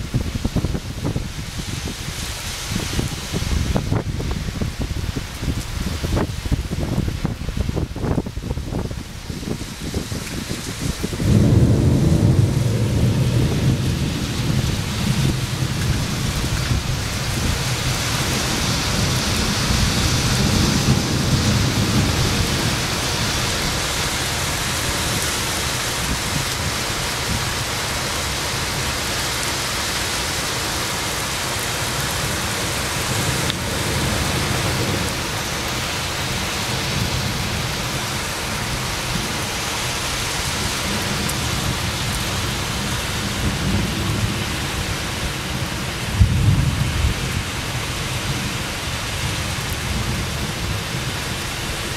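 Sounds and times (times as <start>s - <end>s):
heavy rain: 0.0s - 51.9s
thunder rumbling: 9.9s - 27.6s, 31.9s - 39.4s, 40.5s - 48.7s.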